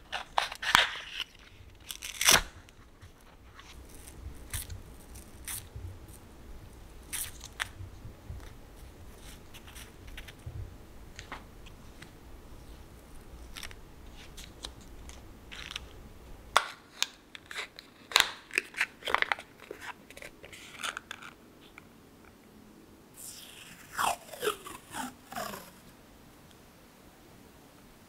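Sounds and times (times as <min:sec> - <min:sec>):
tape packaging crinkling: 0:00.0 - 0:06.2, 0:07.0 - 0:07.8, 0:13.2 - 0:16.0, 0:16.6 - 0:21.8.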